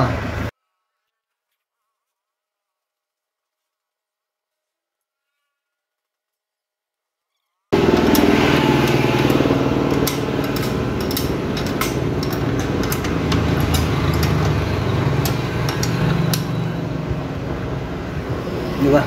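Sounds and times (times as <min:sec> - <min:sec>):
wrench clicking on metal bolt: 0:07.8 - 0:16.8
engine humming: 0:07.8 - 0:19.0.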